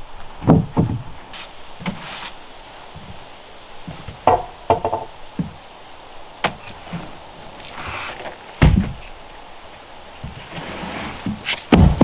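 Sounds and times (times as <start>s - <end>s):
footsteps on wooden boards: 0.2s - 2.3s, 2.9s - 3.2s, 3.8s - 5.6s, 6.4s - 9.2s, 10.2s - 12.0s
wooden knocks on plank floor: 4.2s - 5.6s
heavy thud: 8.6s - 9.0s, 11.3s - 12.0s.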